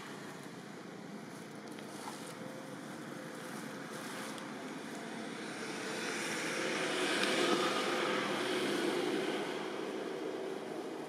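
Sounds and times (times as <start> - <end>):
passing motor vehicle engine: 4.0 - 11.0.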